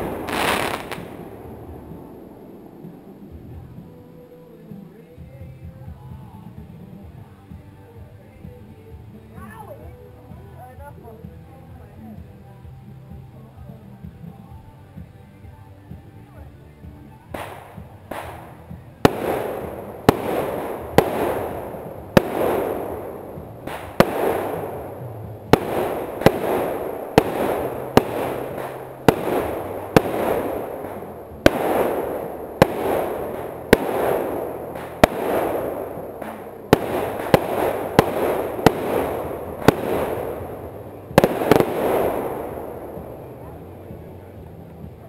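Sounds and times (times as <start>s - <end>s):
fireworks hissing tail: 0.0s - 7.4s, 17.3s - 45.0s
fireworks launching with pops: 0.0s - 11.4s, 17.2s - 45.0s.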